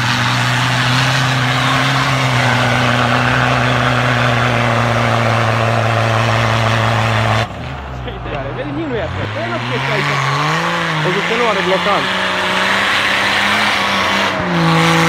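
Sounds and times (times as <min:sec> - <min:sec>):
diesel engine running hard: 0:00.0 - 0:15.0
tyres churning through snow: 0:00.0 - 0:15.0.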